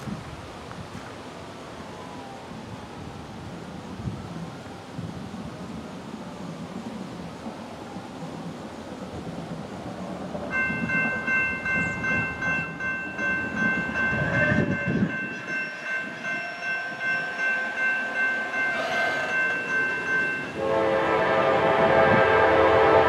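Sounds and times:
locomotive air horn chord: 20.4 - 23.0.

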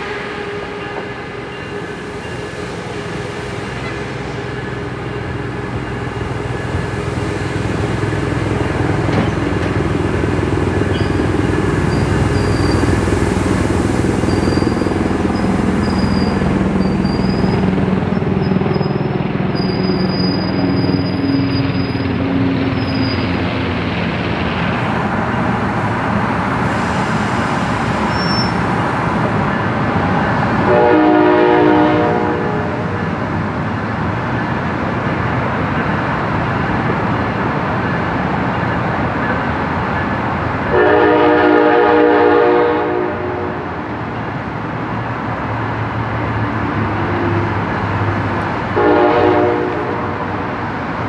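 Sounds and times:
train rumbling past on rails: 0.0 - 51.0
high wheel squeals: 10.6 - 13.5, 14.1 - 23.4, 28.0 - 28.8.

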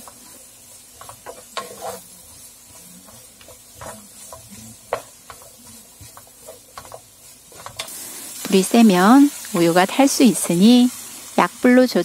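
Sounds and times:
wooden spatula scraping pan: 0.0 - 11.0
vegetables sizzling in butter: 0.0 - 12.0.

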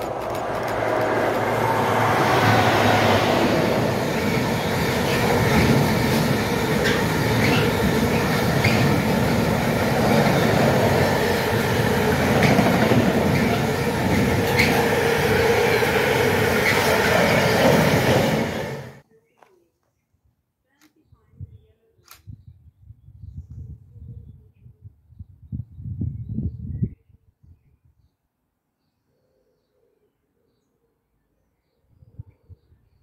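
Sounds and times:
wheels clicking over rail joints: 0.0 - 3.2, 3.8 - 18.9
freight train rumbling past: 0.0 - 19.0.

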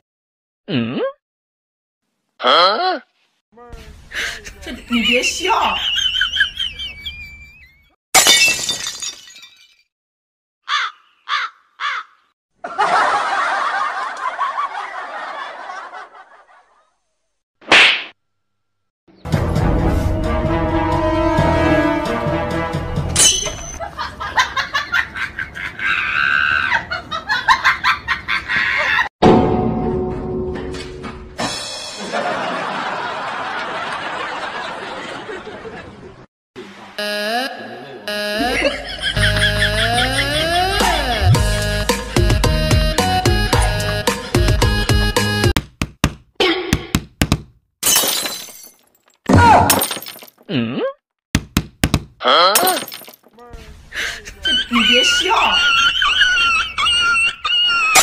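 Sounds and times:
glass breaking crash: 8.2 - 9.9, 23.2 - 23.8, 47.8 - 50.4, 52.6 - 53.3.

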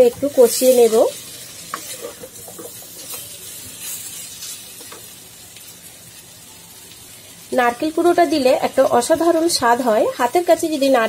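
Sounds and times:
faint frying sizzle: 0.0 - 11.0
spatula scraping and clinking: 1.7 - 5.0.

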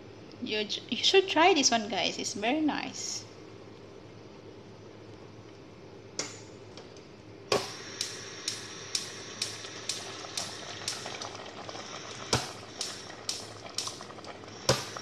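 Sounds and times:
thick sauce bubbling in a pot: 7.5 - 15.0
bubbles popping: 9.6 - 15.0.

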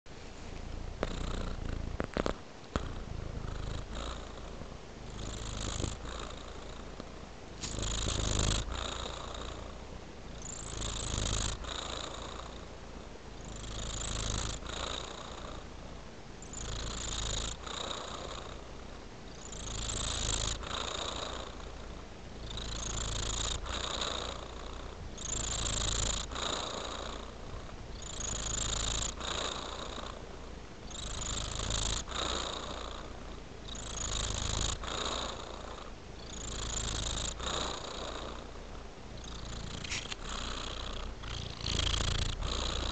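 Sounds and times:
cat purring: 0.2 - 42.9.

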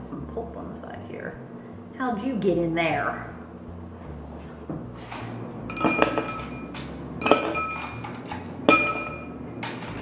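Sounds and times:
dishes and glass clinking: 5.7 - 10.0.

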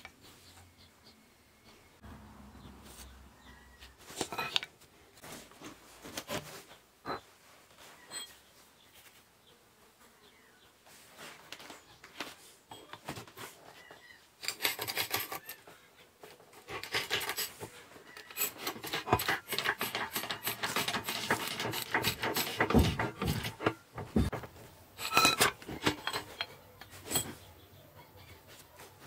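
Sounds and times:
steel parts clicking and scraping: 4.2 - 4.7, 14.4 - 15.6, 16.2 - 27.5.

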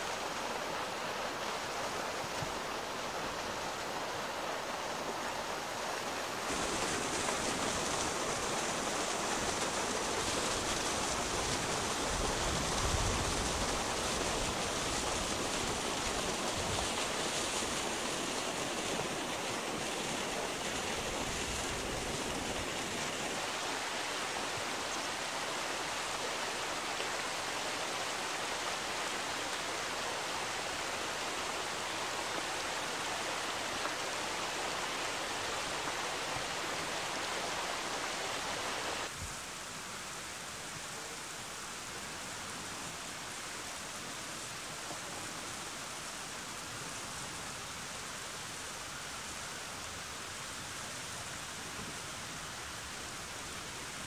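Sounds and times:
river water rushing: 0.0 - 54.0.

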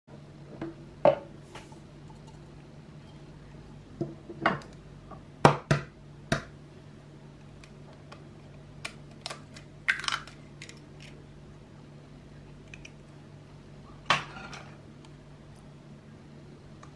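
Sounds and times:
faint steady hum: 0.1 - 16.9
eggshell crackling: 7.5 - 11.2.

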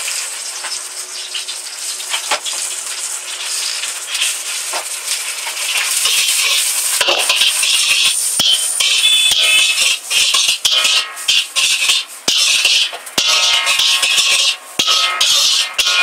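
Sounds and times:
noodles sizzling in a wok: 0.0 - 16.0
metal spatula scraping a wok: 5.4 - 16.0.

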